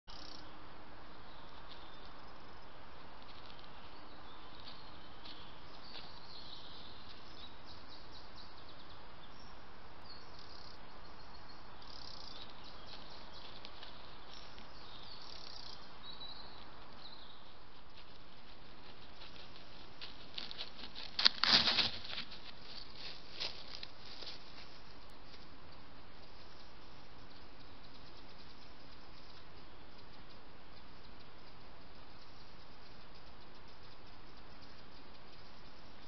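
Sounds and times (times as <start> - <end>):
faint high chirping calls: 0.1 - 20.0, 22.4 - 36.0
light ticks: 27.3 - 36.0.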